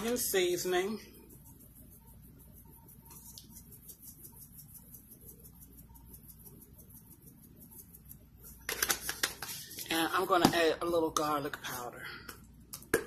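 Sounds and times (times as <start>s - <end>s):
plastic spice shaker rattling: 3.4s - 9.8s.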